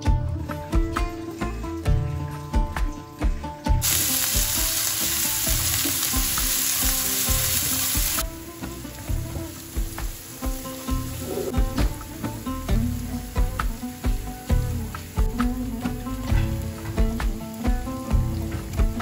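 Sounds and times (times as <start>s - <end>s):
background music with steady beat: 0.0s - 19.0s
spice paste sizzling in oil: 3.8s - 19.0s.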